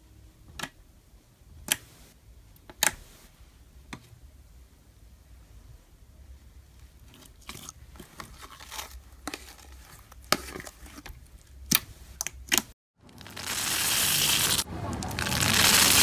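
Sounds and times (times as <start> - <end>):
sticky slime crackles and pops: 11.6 - 16.0
foamy slime squeezed crackling: 13.1 - 16.0.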